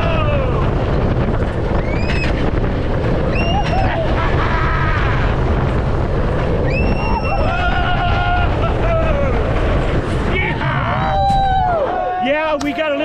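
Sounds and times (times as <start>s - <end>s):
riders screaming: 0.0s - 1.2s, 3.2s - 5.8s, 6.5s - 12.4s
wind buffeting microphone: 0.0s - 13.0s.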